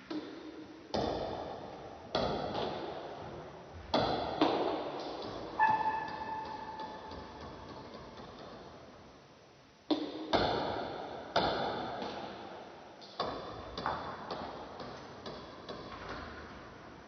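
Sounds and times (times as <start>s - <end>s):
table tennis ball hits: 3.9s - 7.7s.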